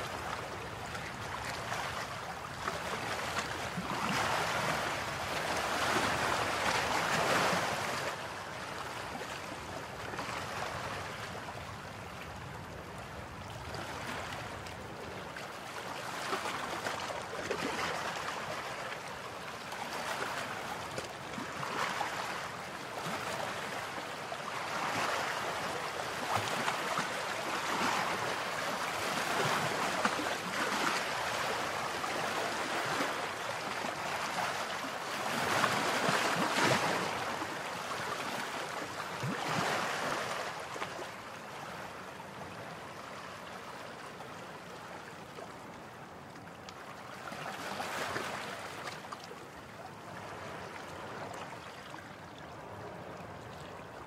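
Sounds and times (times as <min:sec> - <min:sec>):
water splashing and rushing: 0:15.5 - 0:41.0.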